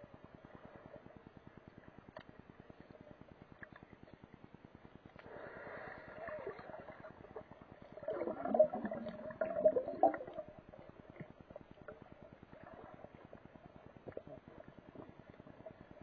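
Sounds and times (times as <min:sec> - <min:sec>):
breathing through a snorkel: 0:05.2 - 0:06.4.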